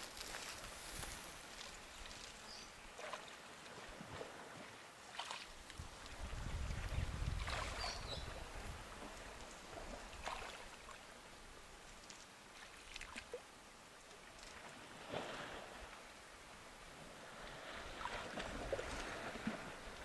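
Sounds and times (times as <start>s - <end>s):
faint steady hiss: 0.0s - 20.0s
short splashes or rustles: 5.1s - 8.3s
wind noise on microphone: 5.7s - 10.0s.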